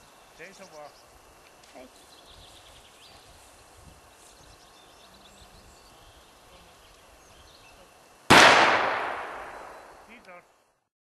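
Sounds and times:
gunshot echoing: 8.3s - 10.1s.

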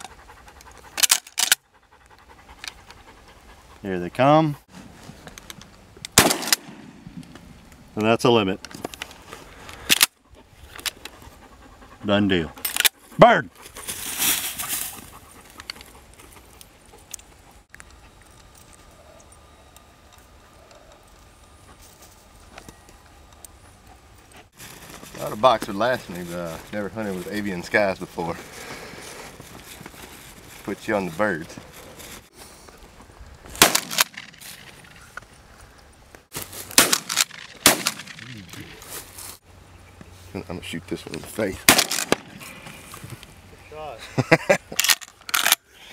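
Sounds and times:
shotgun blasts: 6.2s - 7.2s, 33.6s - 34.5s, 36.7s - 38.4s, 41.6s - 42.4s
loud rustle: 13.6s - 15.1s, 24.6s - 27.4s
dog paws rustling on dry grass: 13.6s - 17.4s, 24.5s - 33.4s, 36.3s - 36.8s, 38.8s - 39.4s.

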